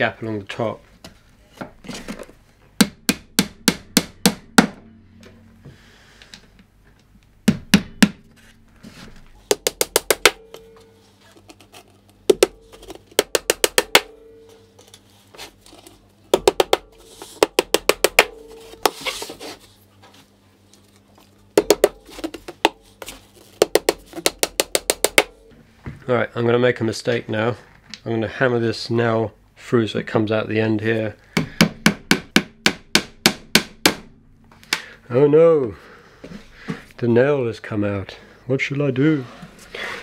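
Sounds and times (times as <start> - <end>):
hammer driving nails into wood: 31.4 - 34.1.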